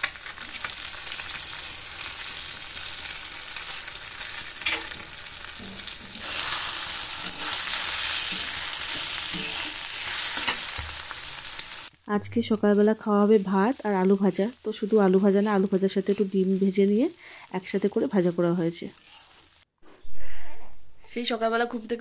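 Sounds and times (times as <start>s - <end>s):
food sizzling in hot oil: 0.0s - 19.7s
metal spatula scraping pan: 5.6s - 10.8s.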